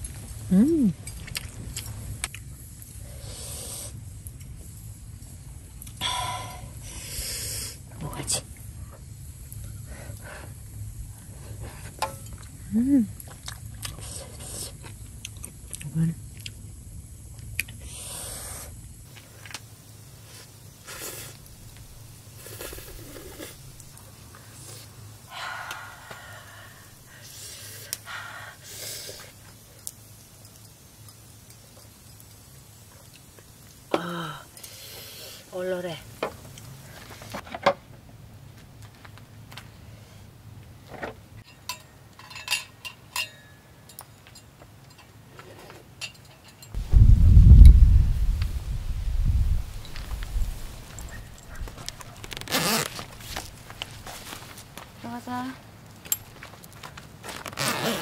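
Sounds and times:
person slurping hissing breaths: 0:03.0 - 0:04.0, 0:06.0 - 0:07.9, 0:13.3 - 0:15.0, 0:17.7 - 0:18.8, 0:20.2 - 0:21.5, 0:22.4 - 0:23.7, 0:24.3 - 0:29.8, 0:34.0 - 0:35.5
cutlery clinking against a dish: 0:41.4 - 0:45.1, 0:46.0 - 0:46.8.

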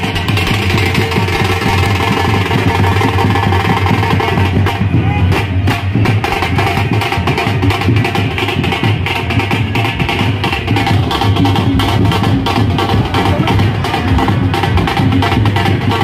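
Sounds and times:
loud drum and percussion music: 0:00.0 - 0:16.0.

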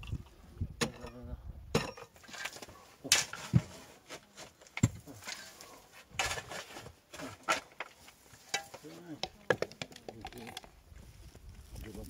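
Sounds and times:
soil scraping: 0:02.1 - 0:09.3.

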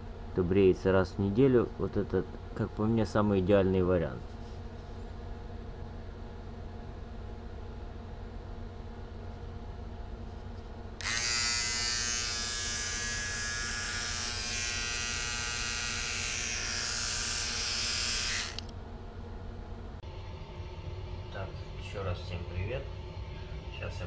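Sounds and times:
electric trimmer buzzing: 0:11.0 - 0:18.7.

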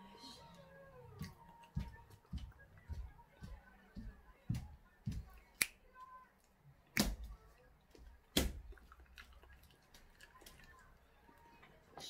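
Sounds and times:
chewing a banana: 0:08.6 - 0:11.8.

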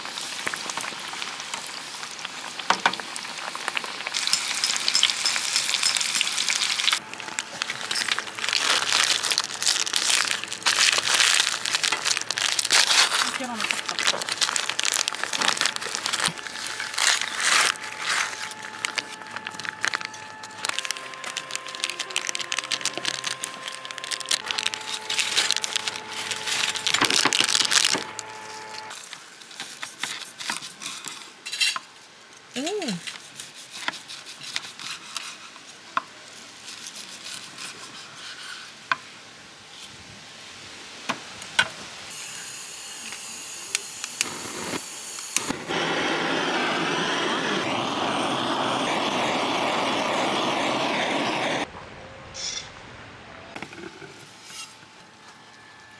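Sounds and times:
utensils and dishes clinking: 0:04.1 - 0:07.0, 0:07.6 - 0:09.3
steady hiss: 0:41.8 - 0:51.7.

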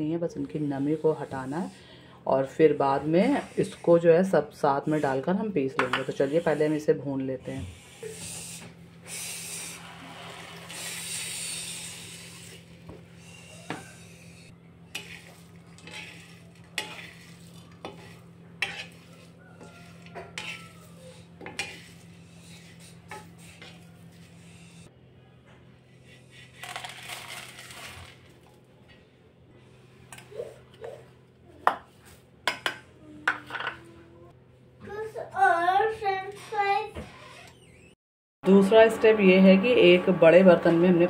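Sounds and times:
steady low hum: 0:00.0 - 0:26.6
spatula scraping metal pan: 0:02.7 - 0:06.9, 0:13.3 - 0:24.9.

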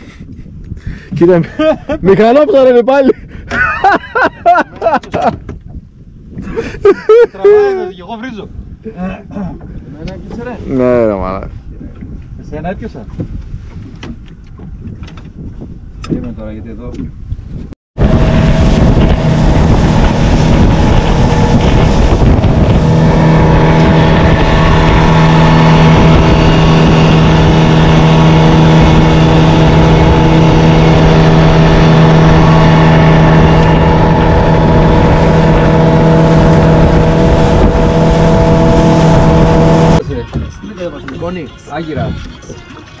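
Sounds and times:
rushing wind: 0:00.0 - 0:40.6
outboard motor running: 0:18.0 - 0:43.0
water rushing over hull: 0:18.0 - 0:43.0.

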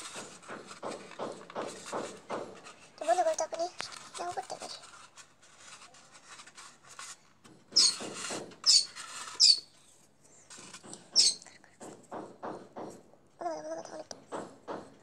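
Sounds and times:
paper rustling and crinkling: 0:00.0 - 0:11.6
faint paper scratching: 0:00.0 - 0:12.1.

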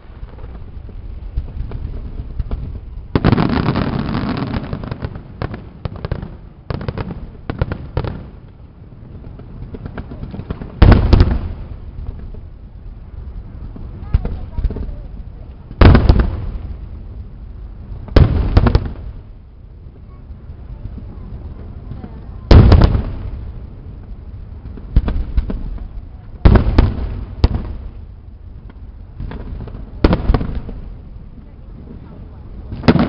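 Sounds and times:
fireworks bangs: 0:00.0 - 0:33.0.

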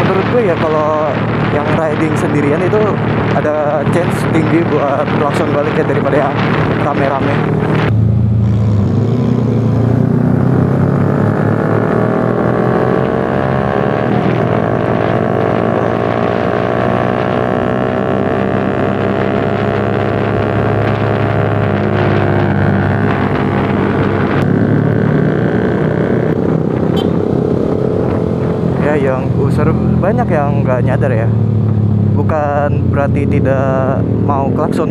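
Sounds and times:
motorcycle engine accelerating: 0:00.0 - 0:34.9
wind and road noise: 0:00.0 - 0:34.9.

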